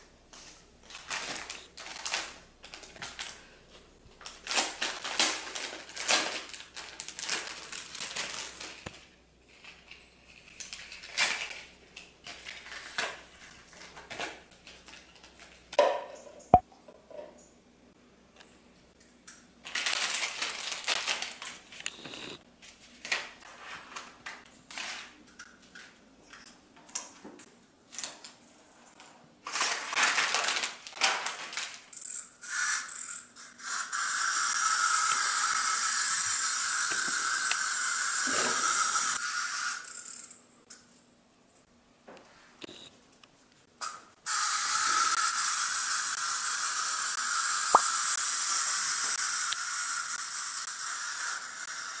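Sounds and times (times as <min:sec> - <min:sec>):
candy wrappers crinkling: 0:00.8 - 0:03.6, 0:04.2 - 0:09.0, 0:09.6 - 0:15.7, 0:19.6 - 0:21.8, 0:29.5 - 0:31.9
wind-up toy clockwork buzzing: 0:31.9 - 0:40.4, 0:44.3 - 0:52.0.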